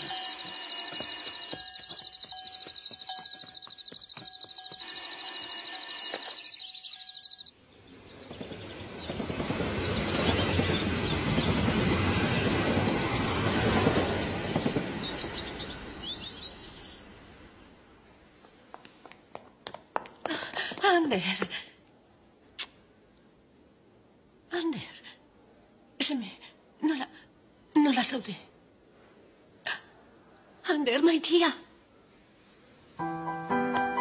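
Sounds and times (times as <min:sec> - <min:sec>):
insects chirping in pulsed trills: 0:00.0 - 0:07.6
passenger train rumble: 0:07.8 - 0:18.2.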